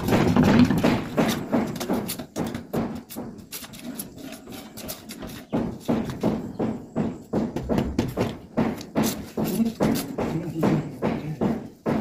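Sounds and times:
pipe knocking in hole: 0.0s - 3.3s, 5.1s - 12.0s
palm slapping pipe top: 7.6s - 10.8s.

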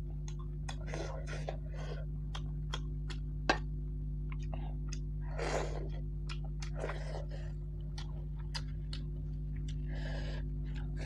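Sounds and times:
steady low hum: 0.0s - 11.0s
wet mouth clicks and smacks: 2.3s - 3.7s
close chewing: 5.8s - 10.0s.

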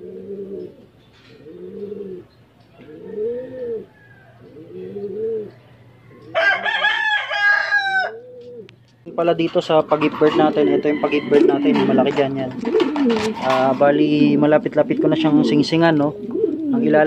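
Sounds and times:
pigeons cooing: 0.0s - 17.0s
rooster crowing: 2.7s - 8.4s, 10.5s - 12.0s.

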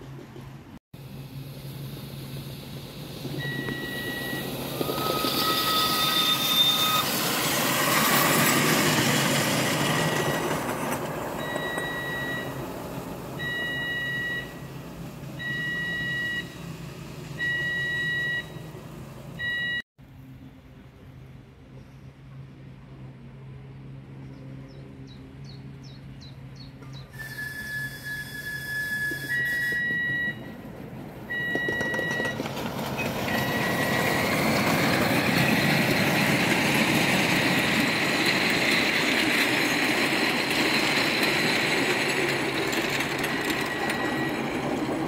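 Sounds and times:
miniature train wheels on track: 2.3s - 12.7s, 27.1s - 30.4s, 31.3s - 45.0s
level crossing alarm beeping: 3.3s - 10.8s, 11.4s - 12.8s, 13.4s - 14.8s, 15.4s - 16.7s, 17.3s - 18.8s, 19.4s - 19.9s, 28.8s - 45.0s
train whistle: 3.4s - 8.4s, 27.1s - 30.5s.

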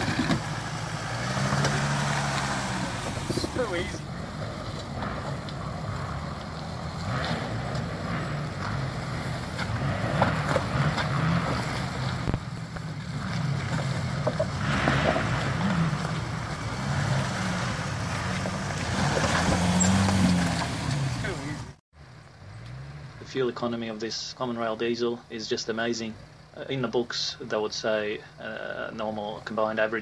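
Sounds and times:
tyres crunching on stones: 0.0s - 21.6s
diesel engine at low revs: 0.0s - 24.5s.

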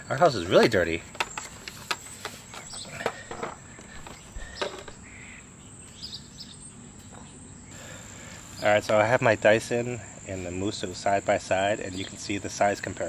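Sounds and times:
insects trilling: 0.0s - 13.0s
faint bird chirps: 2.4s - 8.8s.

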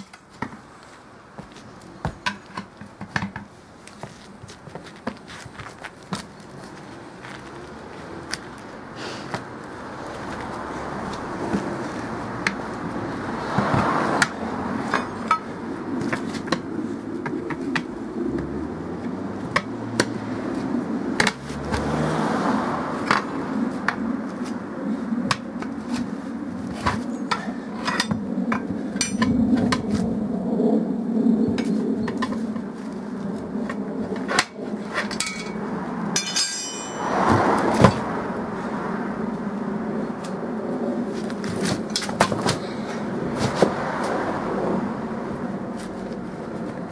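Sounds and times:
ringing metallic rattle: 36.2s - 37.1s.

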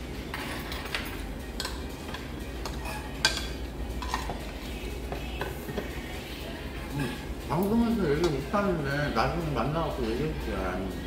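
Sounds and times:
cutlery clinking against dishes: 0.3s - 4.5s.

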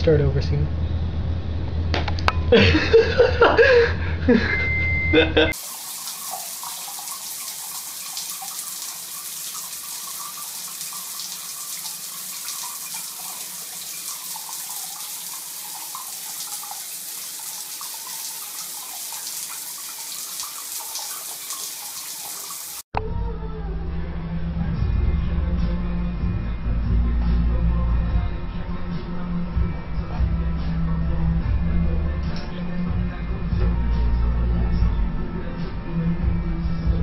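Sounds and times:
water running from sink tap: 5.5s - 22.8s
background music: 23.0s - 37.0s.

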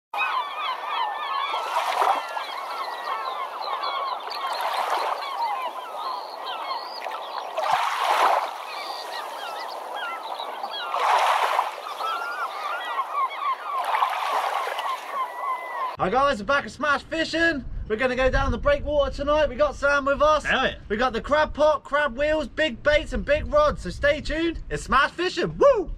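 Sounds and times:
flock of birds chirping: 0.2s - 16.0s.

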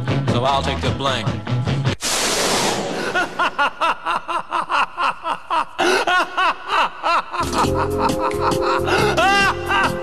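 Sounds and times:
hissing noise: 2.0s - 3.6s
person laughing: 3.0s - 10.0s.

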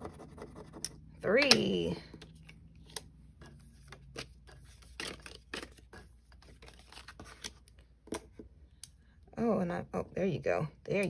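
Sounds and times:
paper cards rustling: 2.1s - 8.3s.

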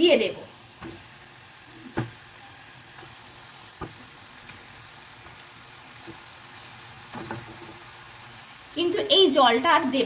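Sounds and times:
faint sizzle: 0.0s - 10.0s
chicken pieces knocking in pan: 0.7s - 1.2s, 1.8s - 6.3s, 7.0s - 7.9s.

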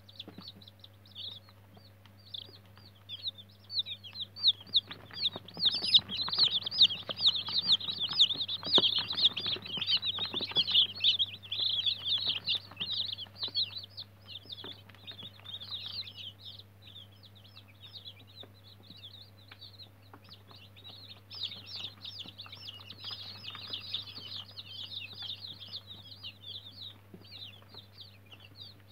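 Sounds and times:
chicks peeping: 0.0s - 28.9s
scratching and tapping: 4.1s - 16.0s.

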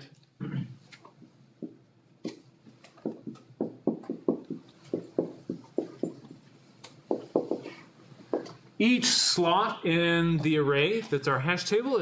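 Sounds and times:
marker writing on whiteboard: 1.1s - 8.6s.

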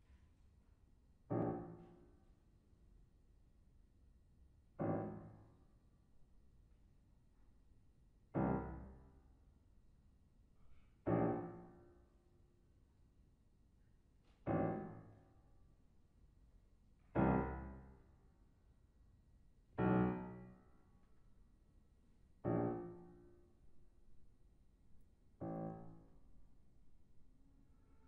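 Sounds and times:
loud piano chords: 1.3s - 2.1s, 4.8s - 5.6s, 8.3s - 9.2s, 11.1s - 11.9s, 14.5s - 15.2s, 17.2s - 18.1s, 19.8s - 20.6s, 22.4s - 24.1s, 25.3s - 26.8s.

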